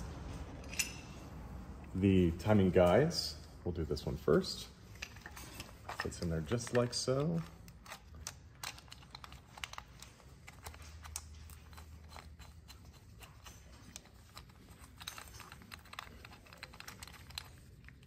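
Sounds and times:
metal parts clicking: 0.6s - 1.2s, 4.9s - 18.0s.

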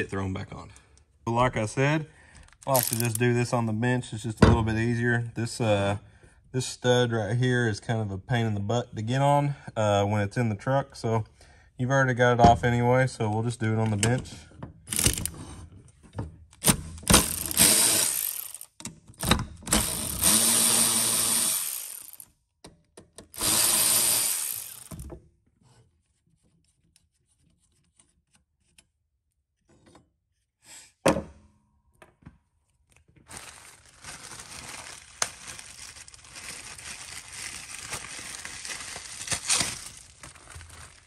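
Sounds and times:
power tool whining: 2.7s - 3.2s, 14.9s - 15.3s, 17.1s - 18.7s, 19.7s - 22.2s, 23.4s - 25.1s.

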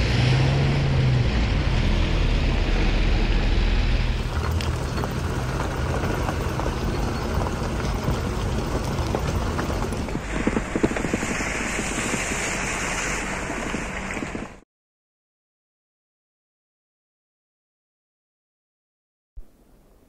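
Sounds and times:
vehicle engine running: 0.0s - 14.6s
rushing water: 4.2s - 14.6s.

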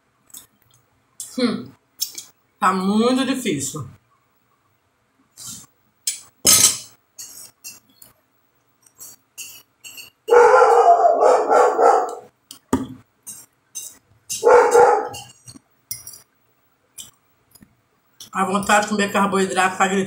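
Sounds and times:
dog barking: 10.3s - 12.3s, 14.4s - 15.3s.

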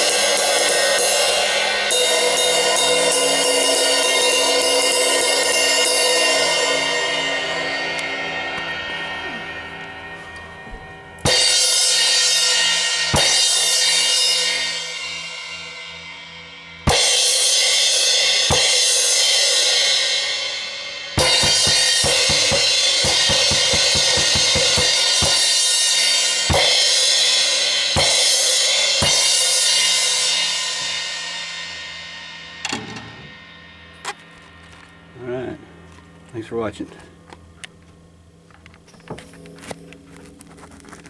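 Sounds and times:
crash cymbals ringing: 0.0s - 32.7s
quick drum strokes: 21.2s - 25.6s.

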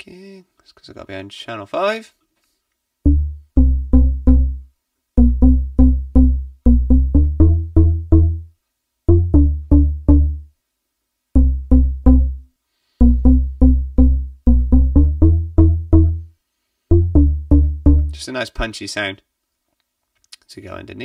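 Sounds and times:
punchy synth bass notes: 3.1s - 8.5s, 9.1s - 10.5s, 11.4s - 12.4s, 13.0s - 16.3s, 16.9s - 18.2s.

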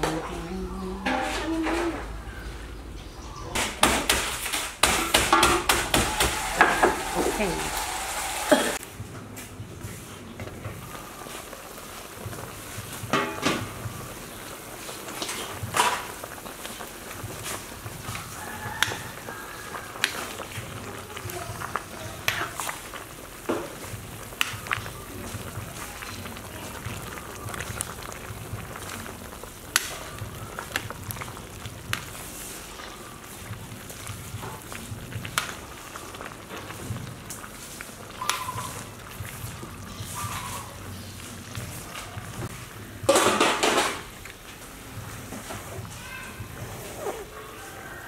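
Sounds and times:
metal ladle stirring: 1.0s - 2.4s
metal pot clattering: 1.0s - 2.4s, 3.6s - 7.1s, 13.0s - 14.0s, 15.1s - 16.5s, 43.0s - 44.2s
soup bubbling at a boil: 3.3s - 48.0s.

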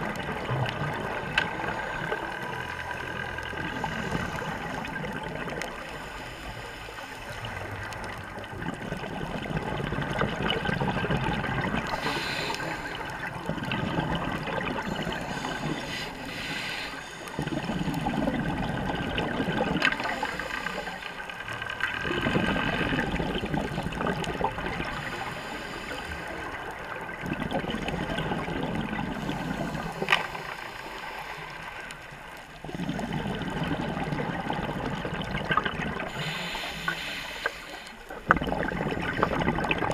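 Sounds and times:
diver inhaling underwater: 1.5s - 8.2s, 11.6s - 39.7s
diver exhaling bubbles underwater: 7.3s - 16.5s, 17.3s - 31.2s, 32.6s - 37.0s, 38.1s - 39.9s.

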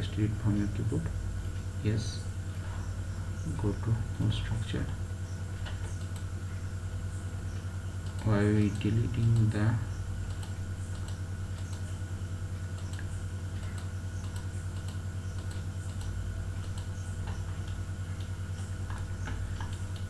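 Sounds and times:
low electrical hum: 0.0s - 20.0s.

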